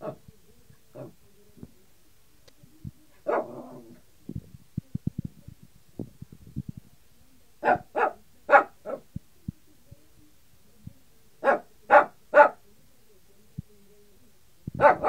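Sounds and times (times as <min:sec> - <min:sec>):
small dog barking: 0:00.0 - 0:00.2, 0:03.2 - 0:04.0, 0:07.6 - 0:09.1, 0:11.4 - 0:12.6, 0:14.8 - 0:15.0.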